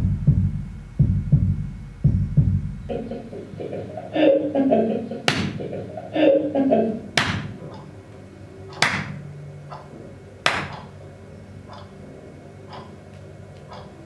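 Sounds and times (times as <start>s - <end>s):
sharp hand claps through speakers: 5.2s - 5.7s, 7.2s - 7.6s, 8.8s - 9.2s, 10.4s - 10.9s.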